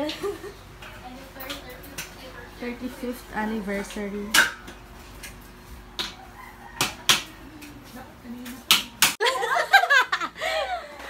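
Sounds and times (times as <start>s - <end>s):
young women laughing: 0.0s - 0.6s, 9.2s - 11.0s.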